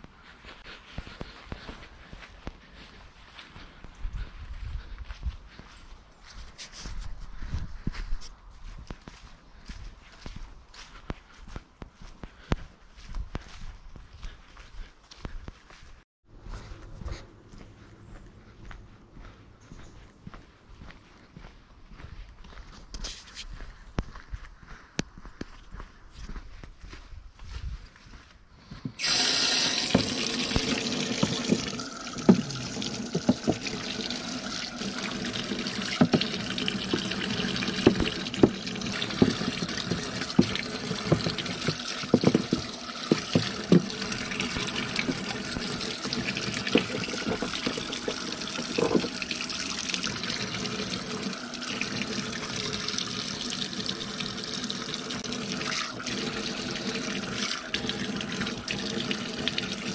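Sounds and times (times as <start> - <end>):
water running from a tap: 29.0 - 59.9.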